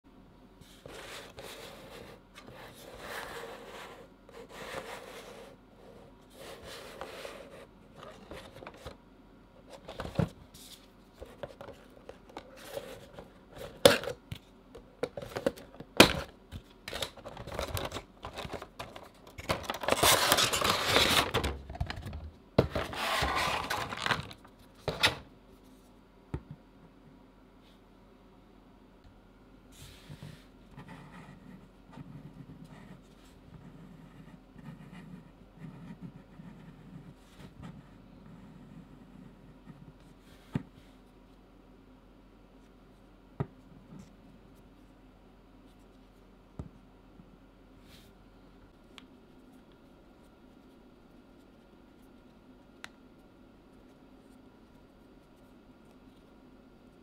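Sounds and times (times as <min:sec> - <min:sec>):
cardboard box rustling and scraping: 0:22.7 - 0:24.3.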